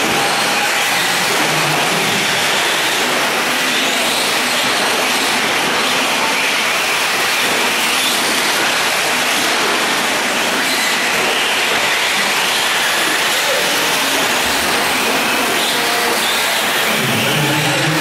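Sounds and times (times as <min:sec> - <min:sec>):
rc trucks racing on dirt: 0:00.0 - 0:18.0.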